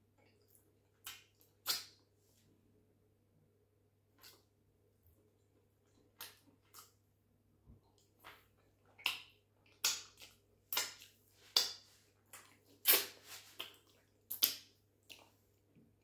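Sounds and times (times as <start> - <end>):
finger licking and lip smacks: 6.2 - 7.0.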